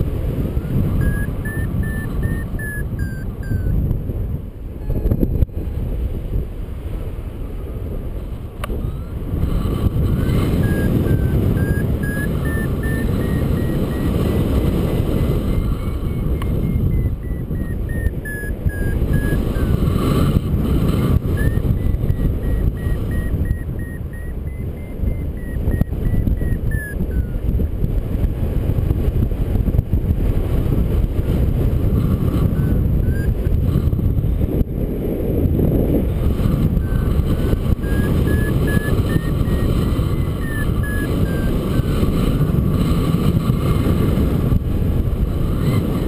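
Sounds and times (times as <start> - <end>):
wind rush on microphone: 0.0 - 46.0
variometer beeping chirps: 0.4 - 3.8, 8.7 - 27.5, 32.2 - 33.8, 36.4 - 42.4.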